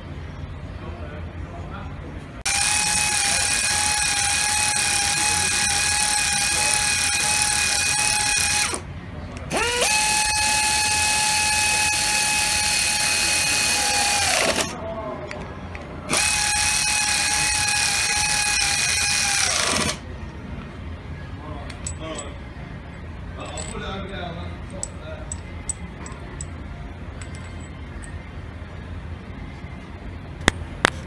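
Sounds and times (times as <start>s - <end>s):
pneumatic screwdriver whining: 2.5s - 8.8s, 9.5s - 14.7s, 16.1s - 20.0s.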